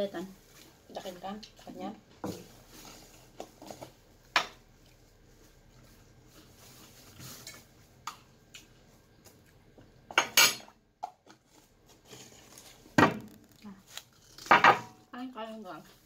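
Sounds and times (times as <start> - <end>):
tableware clinking on a table: 10.1 - 10.8.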